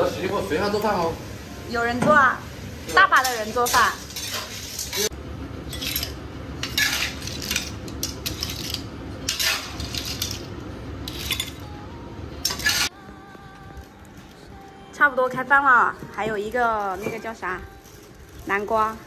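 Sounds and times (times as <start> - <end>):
tableware clinking: 11.1 - 11.6.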